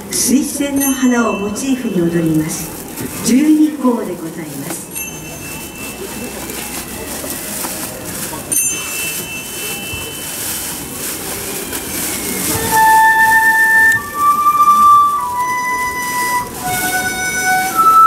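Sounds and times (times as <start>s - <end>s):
low background murmur: 0.0s - 18.0s
bamboo flute held notes: 11.4s - 18.0s.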